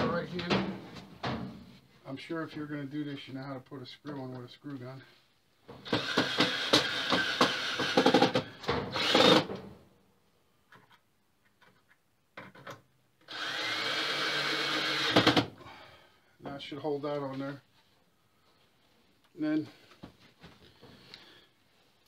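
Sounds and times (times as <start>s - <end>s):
cordless drill driving screws: 5.8s - 9.5s, 13.2s - 15.5s.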